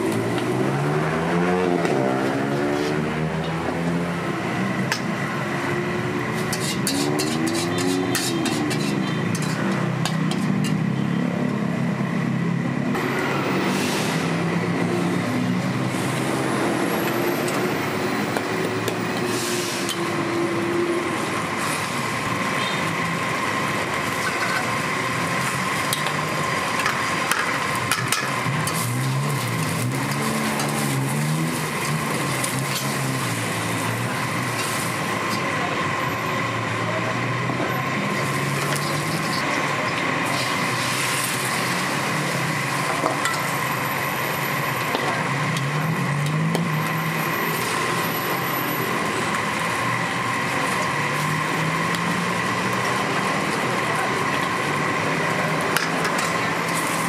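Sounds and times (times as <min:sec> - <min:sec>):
street traffic din: 0:00.0 - 0:57.0
metal spatula scraping wok: 0:06.3 - 0:11.0, 0:19.1 - 0:20.7, 0:24.2 - 0:24.8, 0:26.8 - 0:33.8.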